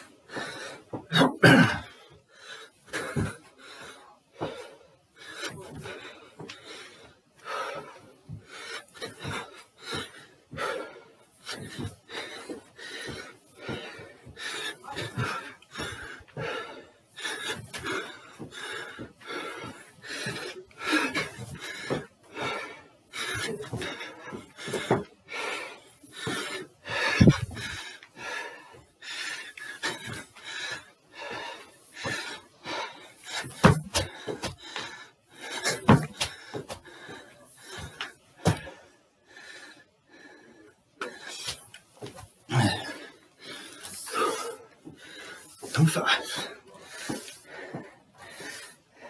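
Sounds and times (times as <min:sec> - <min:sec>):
man panting: 0:00.0 - 0:49.0
feet knocking on step: 0:33.4 - 0:34.7, 0:35.6 - 0:36.9, 0:37.7 - 0:38.8.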